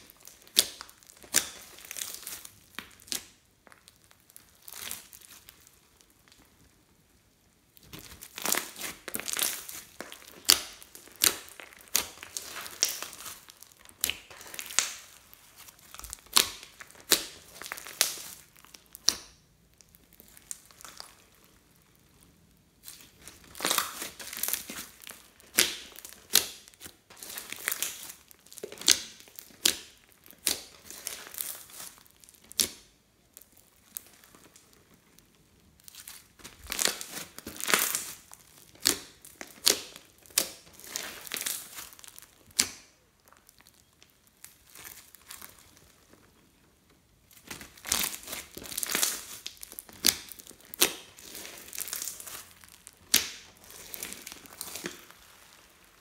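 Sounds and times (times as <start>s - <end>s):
slime crackling and popping: 0.0s - 6.7s, 7.7s - 56.0s.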